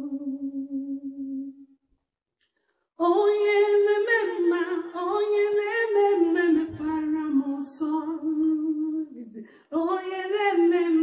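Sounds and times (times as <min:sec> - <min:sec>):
woman singing unaccompanied: 0:03.0 - 0:11.0.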